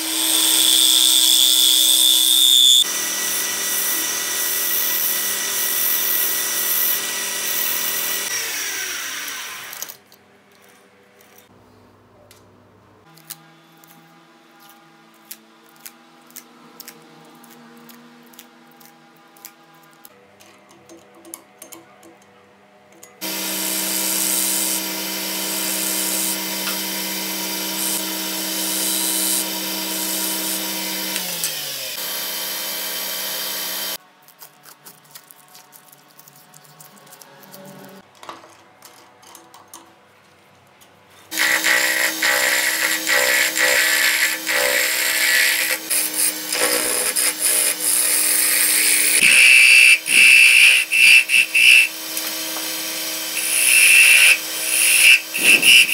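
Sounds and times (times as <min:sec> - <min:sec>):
wood lathe running: 0:23.2 - 0:34.0, 0:41.3 - 0:55.9
motor winding down: 0:53.3 - 0:55.9
gouge scraping turning wood: 0:53.4 - 0:55.9.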